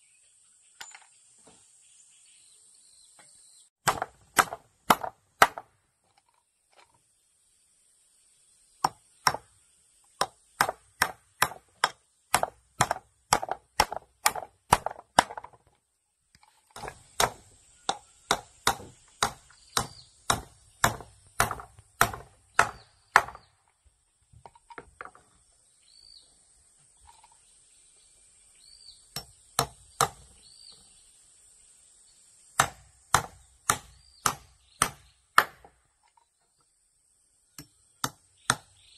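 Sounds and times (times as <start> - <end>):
hammer driving nails into wood: 3.8 - 5.7, 8.8 - 9.5, 10.2 - 15.6, 16.8 - 23.5, 32.6 - 35.7.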